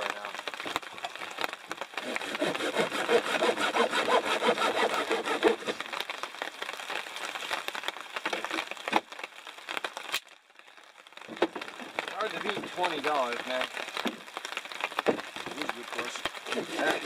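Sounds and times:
hand saw cutting branch: 2.0 - 5.8, 16.5 - 17.0.

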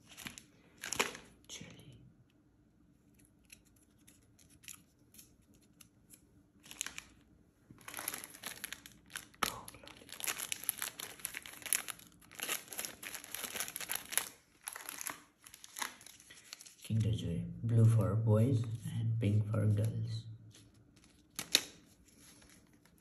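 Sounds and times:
wrappers crinkling and tearing: 0.0 - 1.4, 3.4 - 5.9, 6.6 - 7.2, 7.8 - 17.1, 20.5 - 23.0.

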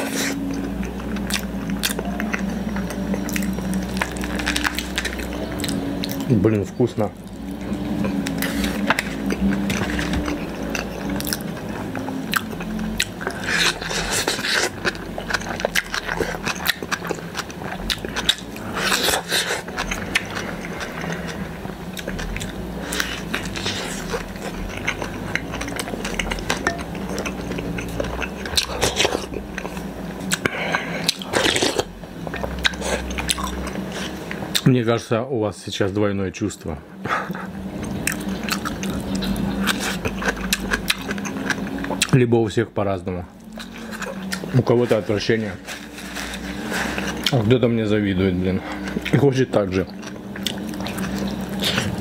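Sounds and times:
chewing: 0.0 - 34.7, 37.0 - 42.2, 43.2 - 52.0
slurping soup and noodles: 18.0 - 21.7, 43.6 - 47.5.

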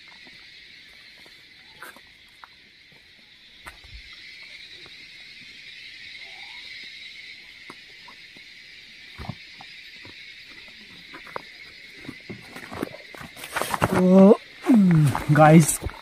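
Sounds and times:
insects chorus: 0.0 - 16.0
footsteps on forest floor: 14.7 - 16.0.

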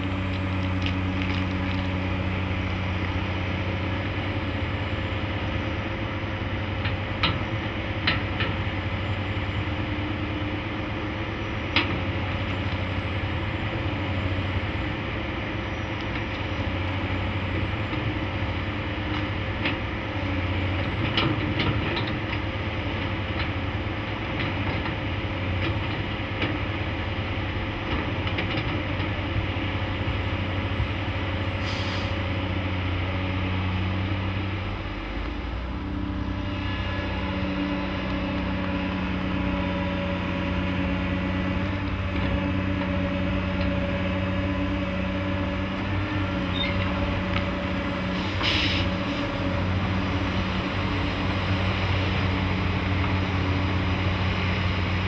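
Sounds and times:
diesel engines of heavy machinery: 0.0 - 55.0
brief hisses: 31.6 - 32.2, 48.2 - 48.9
second engine note: 35.0 - 39.9.

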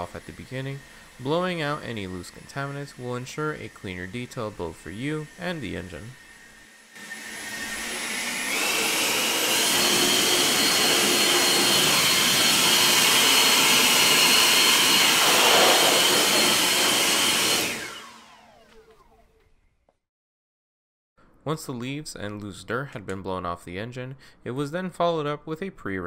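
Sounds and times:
leaf blower rushing air: 0.0 - 19.4.

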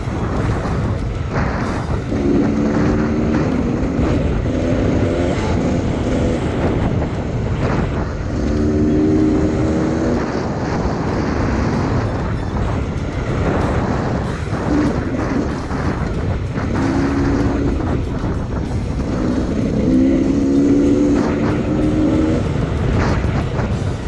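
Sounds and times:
low rumble: 0.0 - 24.0
motorcycle engines running: 0.0 - 24.0
wind on microphone: 0.0 - 24.0.

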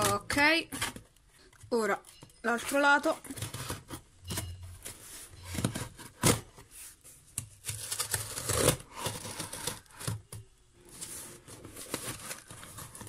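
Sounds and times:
scissors scraping tape and cardboard: 7.6 - 10.2.

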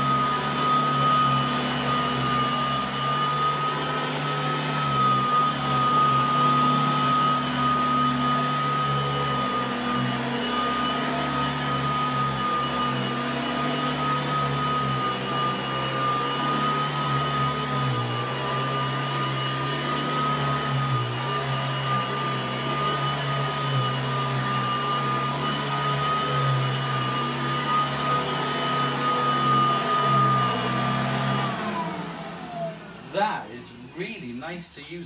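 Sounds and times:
vacuum cleaner motor whine: 0.0 - 34.4.

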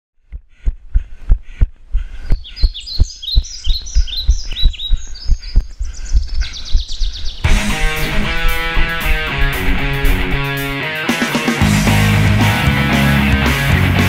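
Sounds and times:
small bird chirping: 0.3 - 10.8.

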